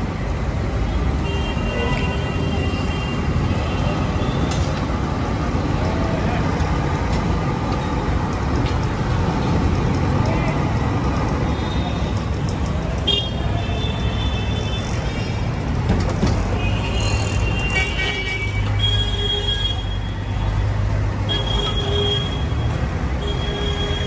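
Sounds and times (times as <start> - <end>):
street traffic engines: 0.0 - 24.0
vehicle horns tooting: 21.2 - 24.0.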